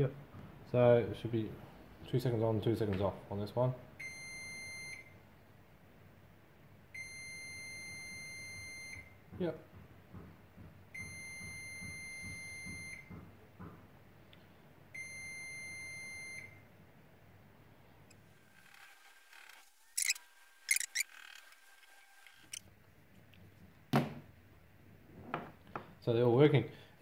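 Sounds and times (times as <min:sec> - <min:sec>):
multimeter continuity beeps: 0:20.0 - 0:21.0
test probes clicking: 0:20.0 - 0:21.0.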